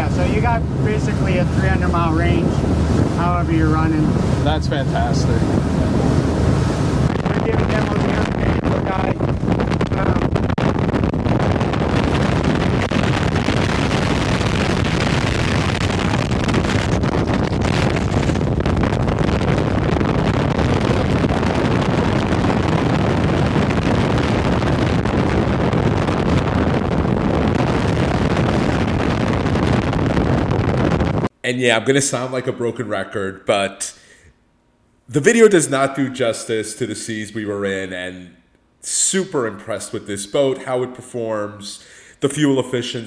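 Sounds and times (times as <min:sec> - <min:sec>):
boat engine running: 0:00.0 - 0:31.3
water along boat hull: 0:00.0 - 0:31.3
wind on microphone: 0:00.0 - 0:31.3.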